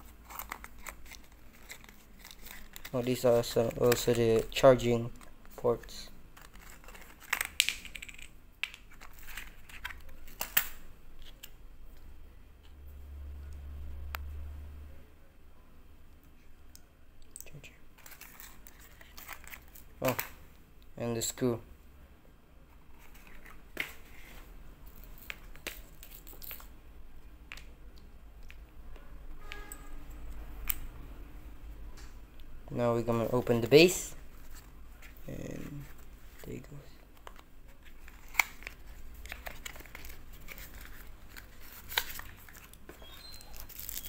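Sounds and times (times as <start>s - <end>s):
small items clicking and tapping: 6.4s - 11.5s.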